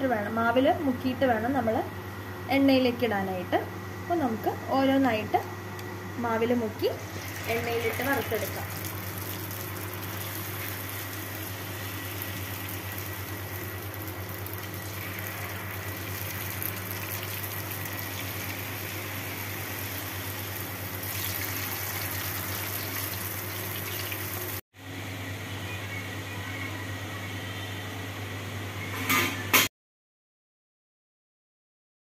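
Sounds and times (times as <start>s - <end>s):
hot oil sizzling: 7.0s - 24.6s.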